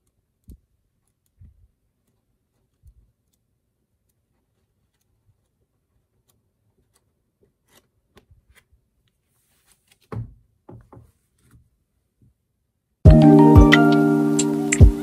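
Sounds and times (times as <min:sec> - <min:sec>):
paper handling: 0:00.5 - 0:10.4
booklets thudding on wooden table: 0:09.9 - 0:11.6.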